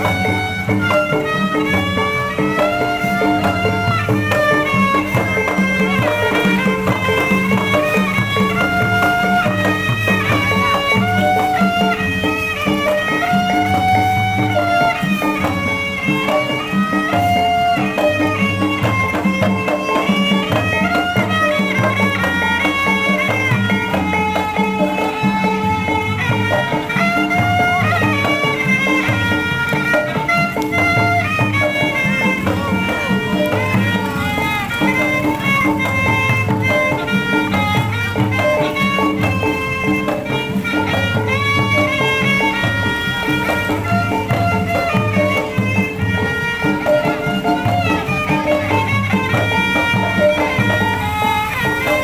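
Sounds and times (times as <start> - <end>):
drum and gong beat: 0.0 - 52.0
high melody line: 0.0 - 52.0.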